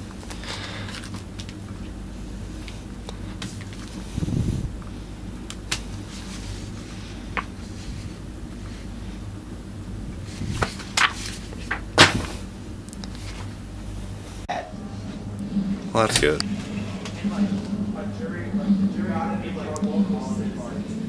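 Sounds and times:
steady low hum: 0:00.0 - 0:21.0
paper and plastic sleeve rustling: 0:00.1 - 0:01.6, 0:10.3 - 0:12.4.

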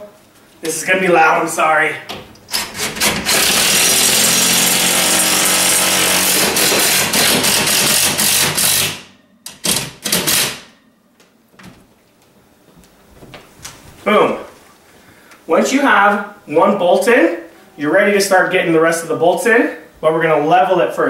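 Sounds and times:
impact driver rattling: 0:02.5 - 0:10.7.

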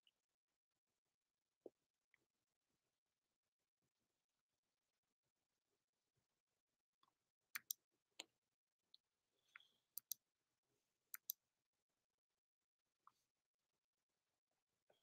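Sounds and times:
sharp clicks in pairs: 0:07.6 - 0:07.8, 0:11.2 - 0:11.4.

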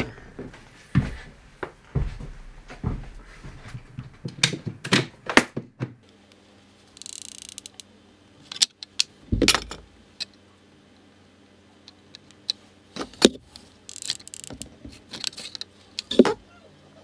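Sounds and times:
plastic parts clicking on wood: 0:07.0 - 0:07.9, 0:11.9 - 0:16.2.

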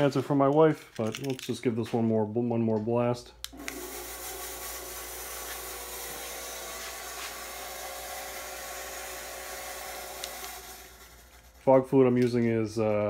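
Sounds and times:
fog machine hissing: 0:03.6 - 0:11.7.

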